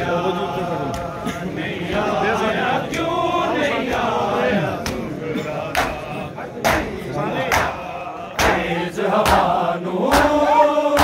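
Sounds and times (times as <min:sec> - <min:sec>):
men chanting a lament: 0:00.0 - 0:11.0
sharp slaps: 0:05.8 - 0:09.5, 0:10.1 - 0:11.0.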